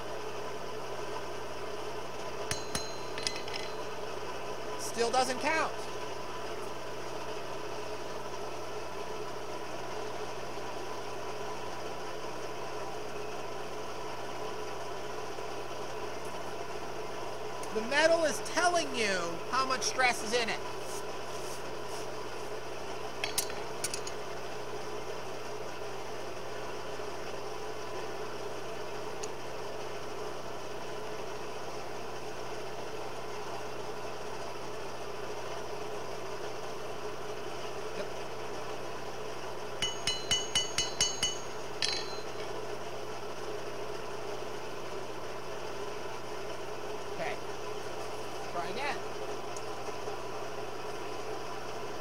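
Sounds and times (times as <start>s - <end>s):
forge blower running: 0.0s - 52.0s
steel-on-steel clinks: 2.5s - 4.0s, 23.2s - 24.2s, 39.8s - 42.5s.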